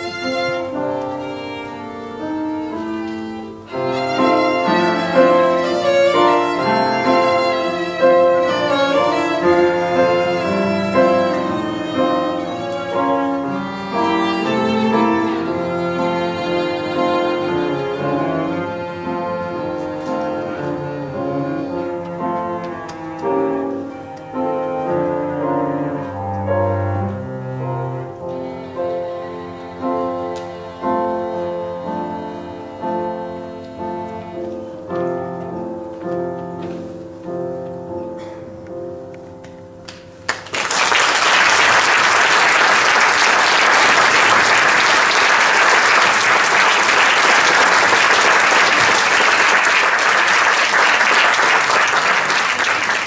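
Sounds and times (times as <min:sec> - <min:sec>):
cello: 0:00.0 - 0:39.6
piano: 0:00.0 - 0:53.0
audience applause: 0:40.3 - 0:53.0.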